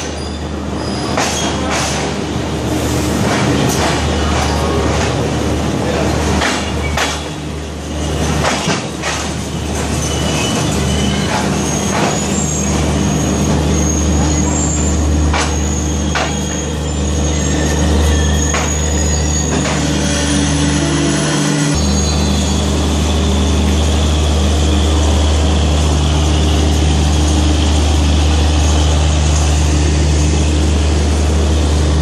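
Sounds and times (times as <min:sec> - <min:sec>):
high wheel and brake squeal: 0:00.0 - 0:01.7, 0:09.5 - 0:25.1
train wheels rumbling on rail: 0:00.0 - 0:32.0.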